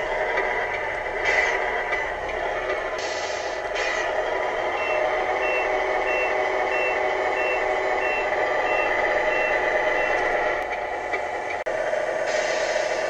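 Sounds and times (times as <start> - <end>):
reversing beeper: 4.8 - 10.4.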